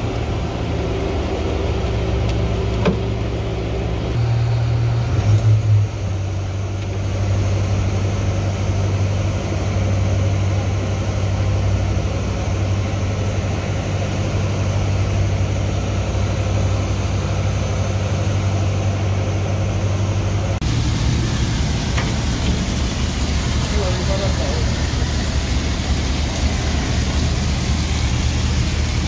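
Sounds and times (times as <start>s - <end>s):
ship engine droning: 0.0s - 29.0s
water spraying: 20.6s - 29.0s.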